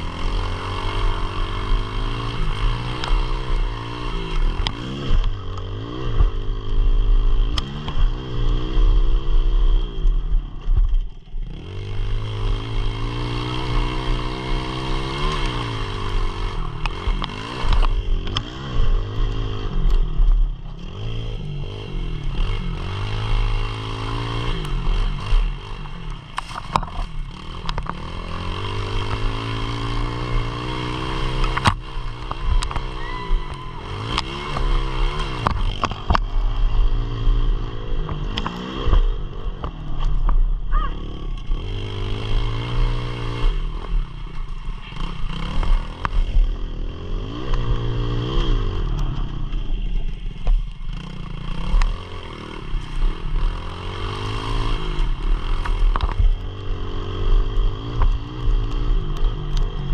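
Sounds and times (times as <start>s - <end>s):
pit bike engine revving: 0.0s - 10.4s, 11.4s - 59.9s.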